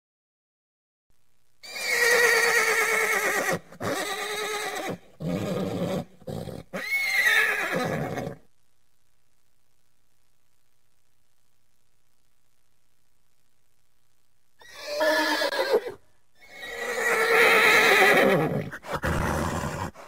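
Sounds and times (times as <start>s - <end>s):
horse whinnying: 1.6s - 8.4s, 14.6s - 20.0s.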